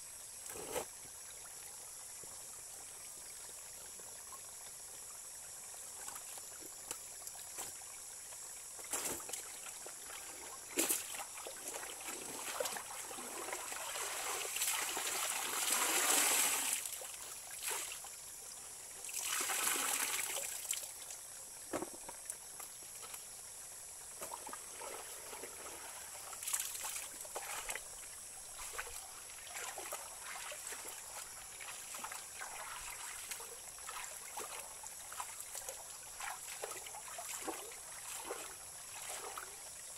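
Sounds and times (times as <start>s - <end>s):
stream trickling over stones: 0.9s - 39.9s
water pouring from wrung garment: 19.1s - 20.5s
laundry splashing in water: 19.1s - 20.6s, 29.5s - 35.3s.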